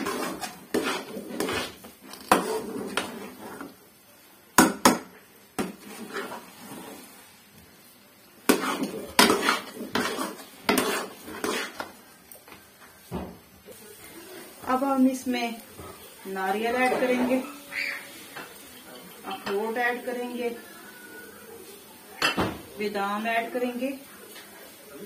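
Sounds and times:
spoon scraping metal pan: 0.0s - 3.8s, 5.6s - 7.2s, 8.4s - 12.0s, 16.5s - 20.2s.

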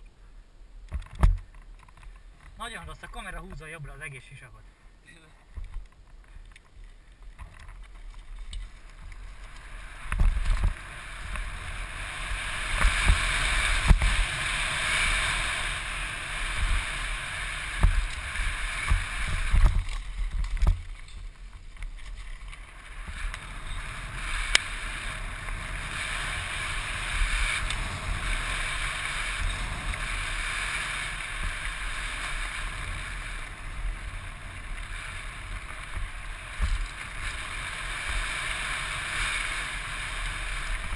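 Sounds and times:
tyres on loose dirt: 5.2s - 40.9s
bike thumping over bumps: 7.2s - 39.9s
wind rushing over microphone: 8.5s - 40.9s.

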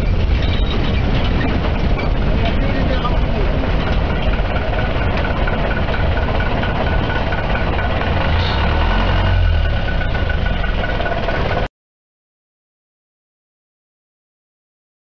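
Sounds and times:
engine running with low throb: 0.0s - 11.7s.

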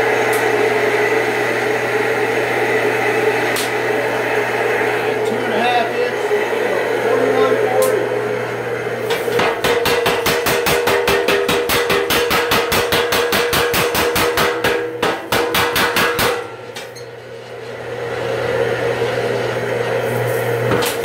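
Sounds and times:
steady hum: 0.0s - 21.0s
power hammer pounding steel: 9.3s - 16.8s.

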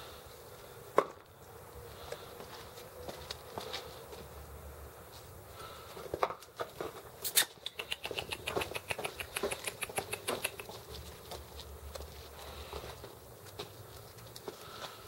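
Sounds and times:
puppy claws clicking on concrete: 6.2s - 15.0s.

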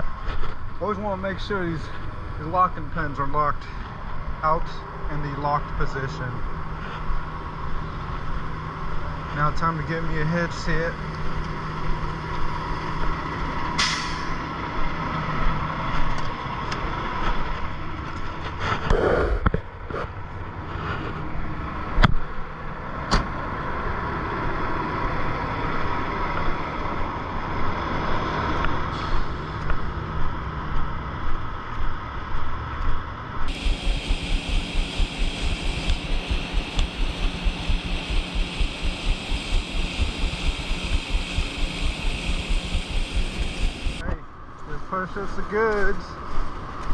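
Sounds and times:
air hiss: 33.5s - 44.0s
diesel engine running: 33.5s - 44.0s
rough fast-pulsing noise: 33.5s - 44.0s
sharp clicks: 33.5s - 44.0s.

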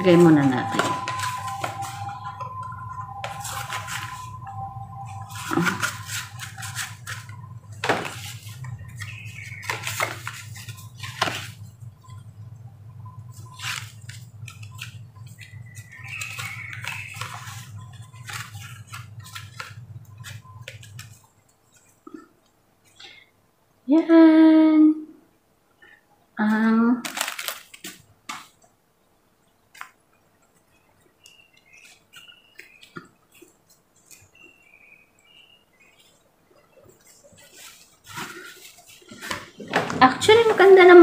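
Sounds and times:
low hum: 0.0s - 23.2s
paper rustling and scraping: 0.1s - 11.7s, 13.3s - 22.0s, 36.8s - 41.0s
wallet handling noises: 0.7s - 12.2s, 13.3s - 22.3s, 27.0s - 28.6s, 35.8s - 41.0s.

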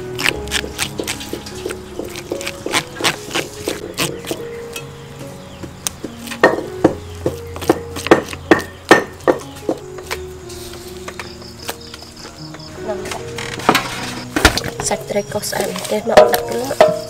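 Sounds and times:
gentle background melody: 0.0s - 17.0s
knife chopping on wooden board: 0.2s - 4.4s, 6.0s - 9.8s.

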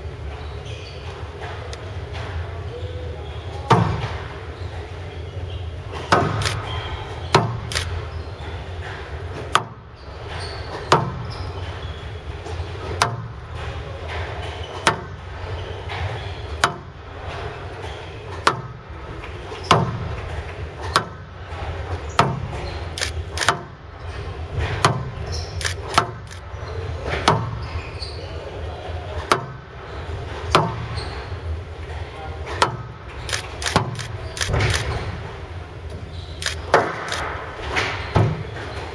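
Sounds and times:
shoe squeaks on wooden floor: 0.3s - 1.4s, 10.0s - 13.0s, 22.0s - 23.5s, 25.2s - 28.6s, 36.0s - 37.4s
ball striking court walls: 3.7s - 4.3s, 5.9s - 8.0s, 8.8s - 9.8s, 10.7s - 11.8s, 12.5s - 15.3s, 15.9s - 16.9s, 18.3s - 23.8s, 24.5s - 26.3s, 27.0s - 27.7s, 30.4s - 31.0s, 32.5s - 35.2s, 35.9s - 38.8s
racket hitting squash ball: 3.7s - 4.3s, 5.9s - 8.1s, 10.7s - 11.3s, 12.5s - 13.4s, 18.3s - 18.8s, 19.5s - 21.2s, 21.9s - 23.8s, 24.5s - 26.3s, 27.0s - 27.6s, 29.2s - 29.6s, 30.4s - 31.0s, 36.6s - 38.6s.

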